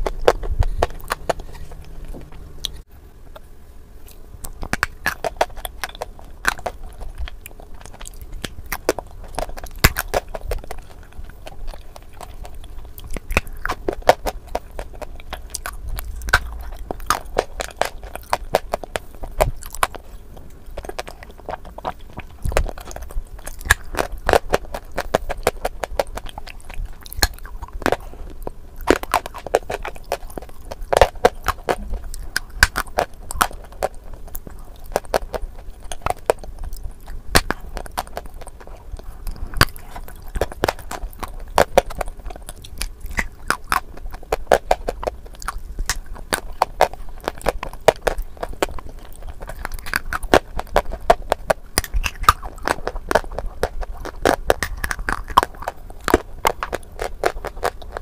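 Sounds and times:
person crunching clay: 0:00.0 - 0:03.4, 0:04.1 - 0:58.0.

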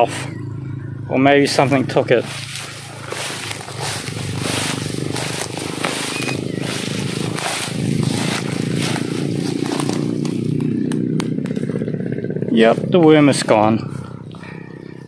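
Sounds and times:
steady low rumble: 0:00.9 - 0:14.8
grass rustling against phone: 0:01.5 - 0:11.9.

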